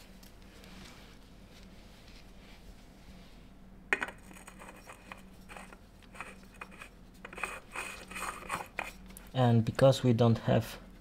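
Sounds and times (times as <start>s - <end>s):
hand scraping metal filter: 4.2s - 9.0s.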